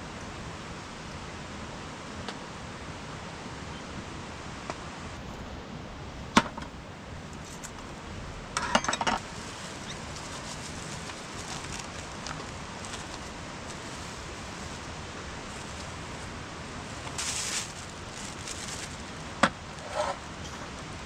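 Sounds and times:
steady hiss: 9.2s - 21.0s.

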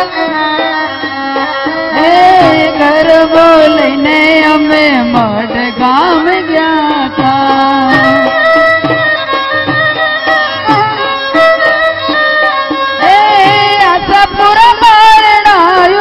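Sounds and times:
woman singing: 0.0s - 9.0s, 13.0s - 16.0s
hand drum beats: 0.0s - 16.0s.

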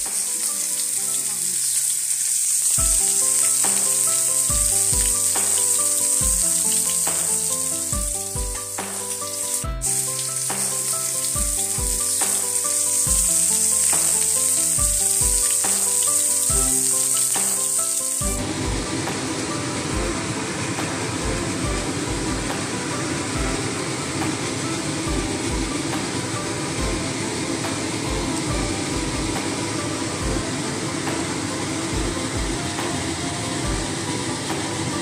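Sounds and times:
fish frying in oil: 0.0s - 33.2s
music with kick-drum beat: 2.8s - 19.2s, 19.9s - 22.7s, 23.4s - 24.5s, 25.1s - 26.2s, 26.8s - 29.6s, 30.2s - 31.3s, 31.9s - 32.9s, 33.6s - 34.7s.

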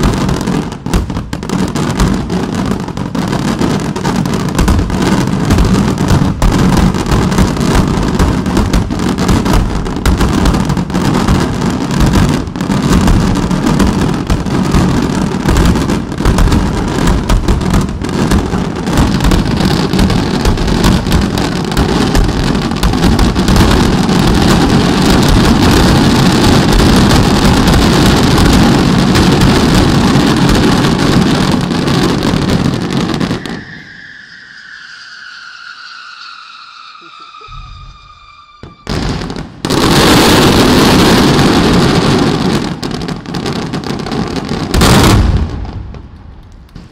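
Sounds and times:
fireworks bangs and crackling: 0.0s - 46.9s.

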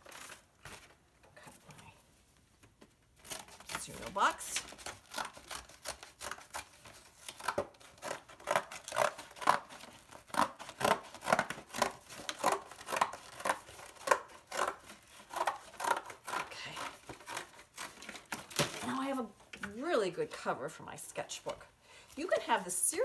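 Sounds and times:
scissors cutting cardboard: 3.2s - 18.9s.

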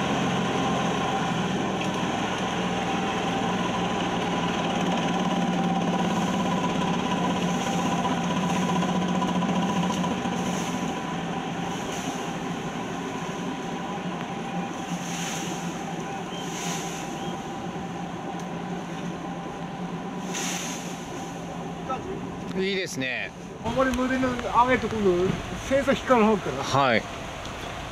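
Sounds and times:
diesel engine running: 0.0s - 27.9s
steady whine: 0.0s - 27.9s.

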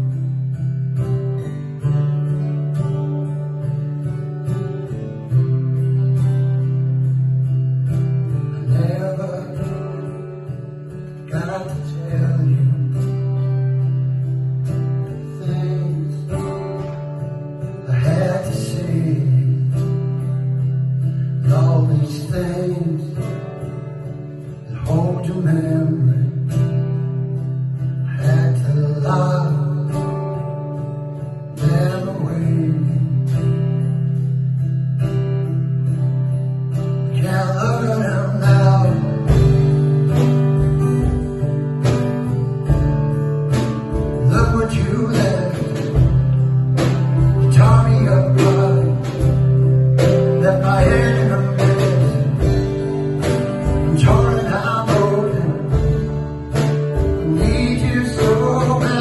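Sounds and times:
strummed acoustic guitar: 0.0s - 59.0s
man singing: 8.4s - 10.3s, 11.2s - 13.8s, 14.8s - 16.8s, 17.7s - 20.5s, 21.3s - 23.5s, 24.7s - 26.7s, 28.0s - 30.5s, 31.5s - 33.5s, 37.0s - 40.2s, 44.0s - 59.0s
steady low bass notes: 32.7s - 59.0s.

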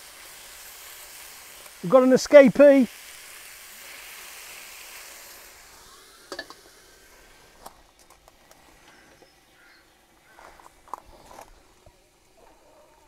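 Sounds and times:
faint frying sizzle: 0.0s - 13.0s
metal barbecue lid clanking: 6.3s - 6.6s.

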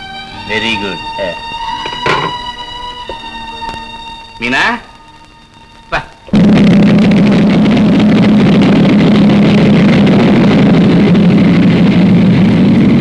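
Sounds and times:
propeller airliner engines droning: 0.0s - 13.0s.

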